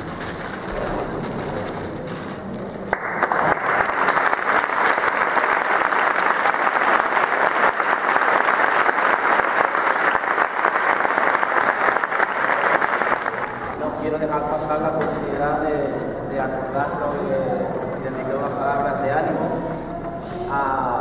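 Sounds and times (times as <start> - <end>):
people applauding: 2.9 - 14.0.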